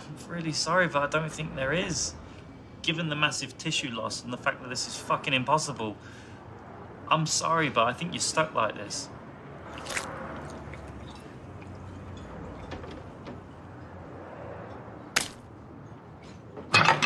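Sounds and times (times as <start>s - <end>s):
restaurant room ambience: 0.0s - 17.0s.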